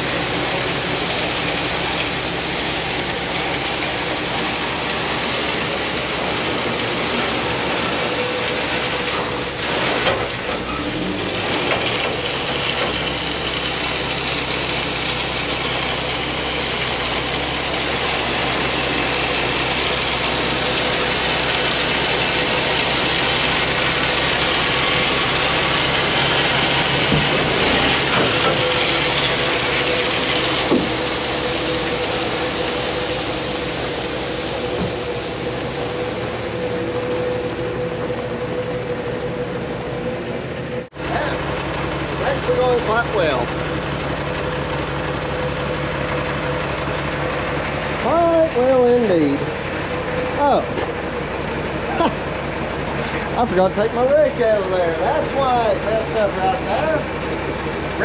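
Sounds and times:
diesel truck engine running: 0:00.0 - 0:58.0
gravel spreading: 0:00.0 - 0:58.0
broad hiss: 0:12.2 - 0:38.1.

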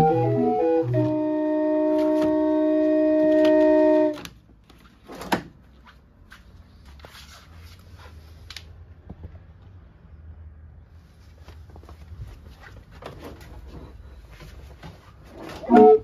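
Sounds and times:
hand-cranked organ chord: 0:00.0 - 0:04.2, 0:15.6 - 0:16.0.

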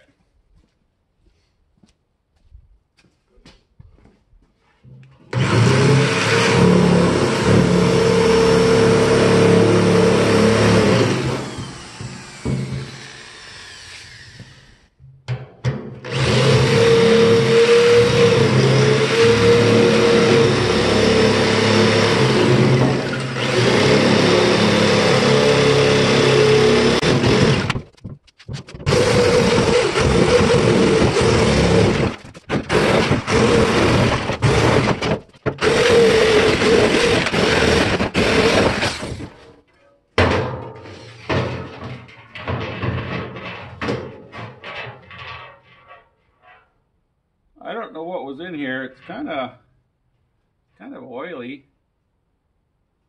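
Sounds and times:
power tool cutting sheet steel: 0:05.3 - 0:14.9, 0:16.0 - 0:27.9, 0:28.8 - 0:39.5
steel lid clanking: 0:39.8 - 0:46.6.

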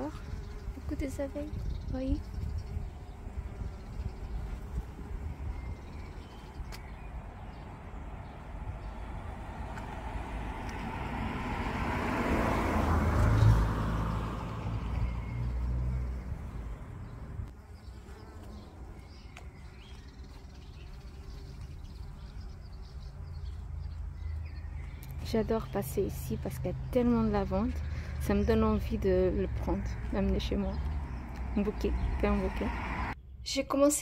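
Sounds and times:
car driving past: 0:07.4 - 0:17.5, 0:27.7 - 0:33.2.

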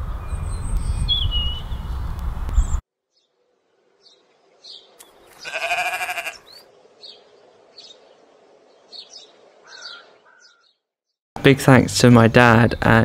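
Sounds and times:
bird chirps: 0:00.2 - 0:03.4, 0:04.0 - 0:10.9
sheep bleating: 0:05.3 - 0:06.6.

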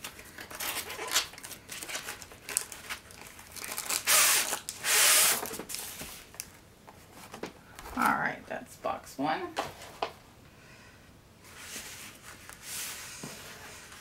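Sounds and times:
paper sliding against cardboard: 0:11.5 - 0:14.0.

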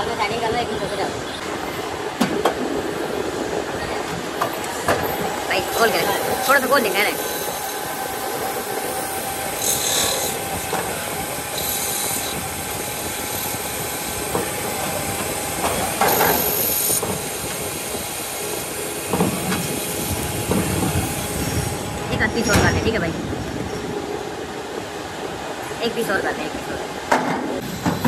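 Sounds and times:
lathe machining noise: 0:05.5 - 0:21.8.

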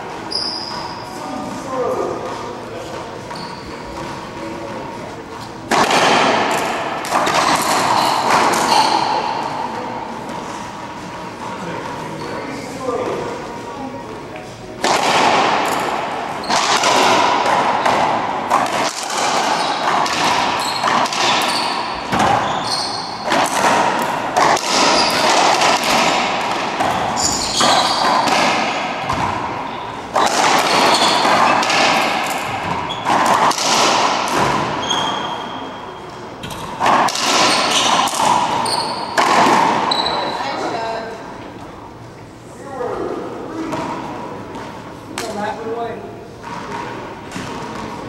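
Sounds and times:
sneakers squeaking on hardwood: 0:00.1 - 0:01.5, 0:02.3 - 0:04.9, 0:06.5 - 0:13.1, 0:15.6 - 0:33.4, 0:34.5 - 0:40.6
racquetball ball cracks: 0:05.7 - 0:09.5, 0:14.8 - 0:22.4, 0:23.0 - 0:35.2, 0:36.4 - 0:40.1.

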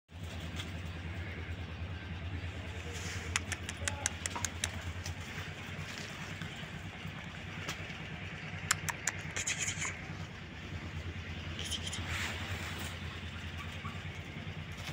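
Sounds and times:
low pulsing hum: 0:00.1 - 0:14.9
sharp clicks and scratches: 0:03.1 - 0:05.2, 0:08.4 - 0:10.1.

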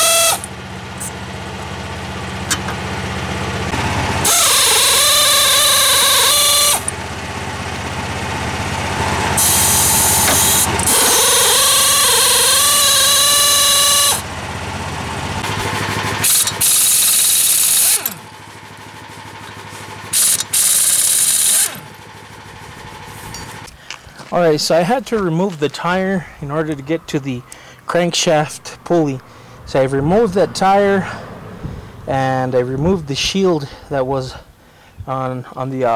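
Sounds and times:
impact wrench whining: 0:00.0 - 0:01.2, 0:02.4 - 0:02.9, 0:03.7 - 0:07.0, 0:09.0 - 0:14.3, 0:15.4 - 0:22.1, 0:25.2 - 0:32.4.

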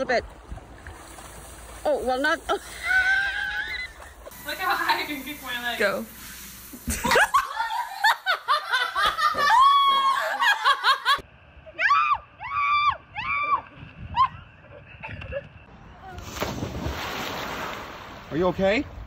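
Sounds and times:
girl laughing and shrieking: 0:02.6 - 0:04.2, 0:07.0 - 0:11.2, 0:11.8 - 0:15.5
girl squealing: 0:02.7 - 0:04.1.

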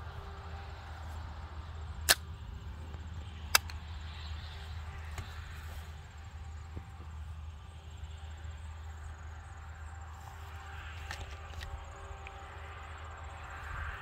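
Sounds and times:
low wind rumble: 0:00.0 - 0:14.0
sharp cracks: 0:02.0 - 0:02.4, 0:03.4 - 0:03.8.

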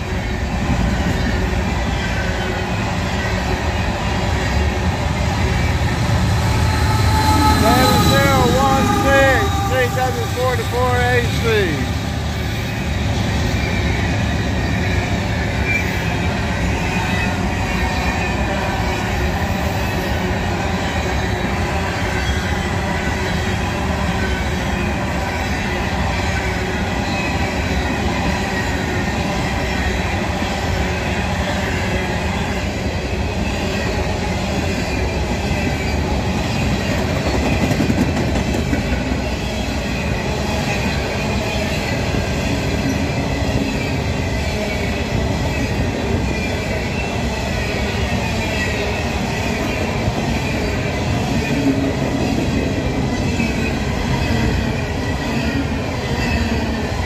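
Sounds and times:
train wheels rumbling on rails: 0:00.0 - 0:57.0
high wheel squeal: 0:05.2 - 0:16.0.

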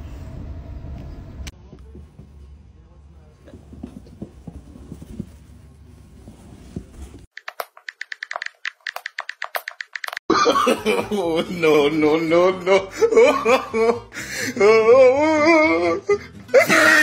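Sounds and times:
box scuffing across carpet: 0:03.6 - 0:07.3
rapid sharp clicks: 0:07.3 - 0:10.2.

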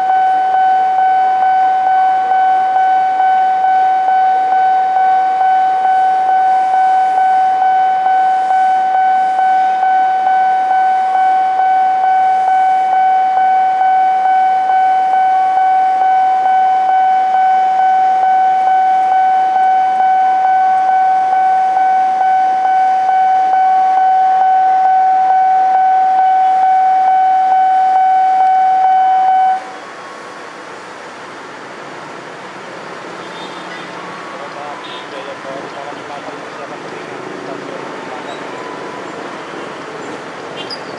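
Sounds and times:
pulsing electronic warning tone: 0:00.0 - 0:29.7.

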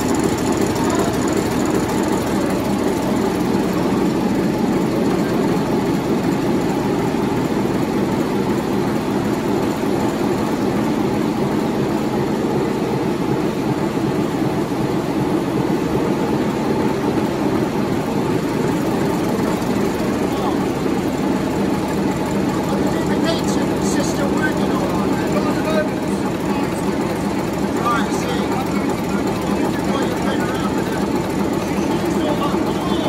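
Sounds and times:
large diesel engine droning: 0:00.0 - 0:33.0.

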